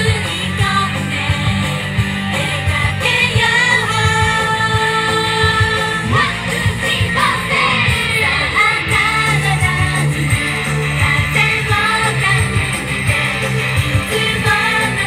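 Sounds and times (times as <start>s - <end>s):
upbeat pop music: 0.0s - 15.0s
women singing in unison: 0.0s - 15.0s.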